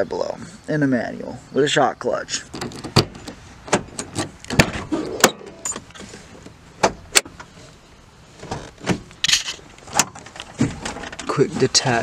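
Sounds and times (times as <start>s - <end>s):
release lever rattling clatter: 8.4s - 11.3s.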